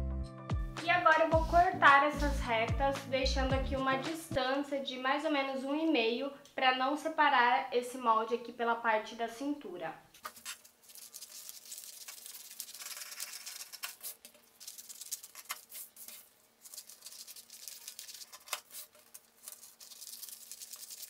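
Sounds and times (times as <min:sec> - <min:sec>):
paper rustling: 0:10.2 - 0:21.0
scissors cutting paper: 0:10.2 - 0:21.0.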